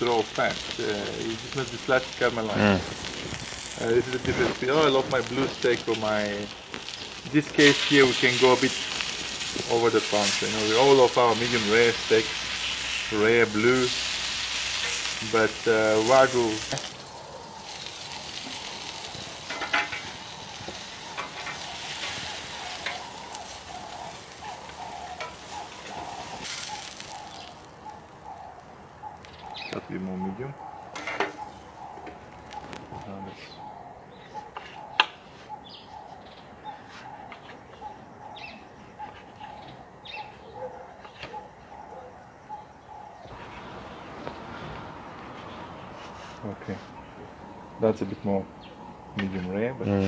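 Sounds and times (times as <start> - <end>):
steak sizzling on a grill: 0.0 - 29.7.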